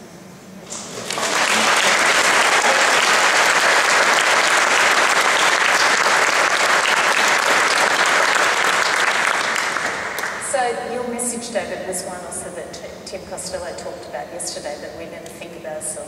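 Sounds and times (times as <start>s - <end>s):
audience applauding: 0.7s - 10.5s.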